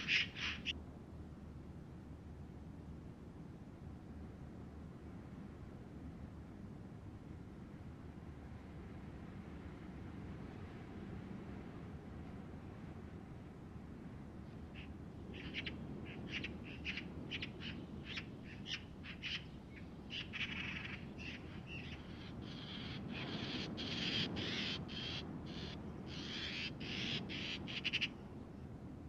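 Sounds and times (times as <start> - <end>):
wild birds calling: 0.0 - 0.7, 14.7 - 28.2
low steady hum: 0.0 - 29.0.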